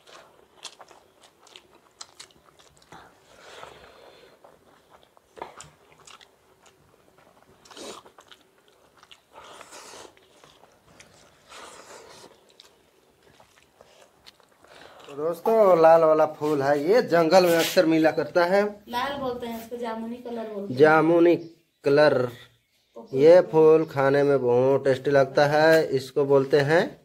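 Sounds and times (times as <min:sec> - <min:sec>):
chewing and mouth sounds: 0:00.0 - 0:15.6.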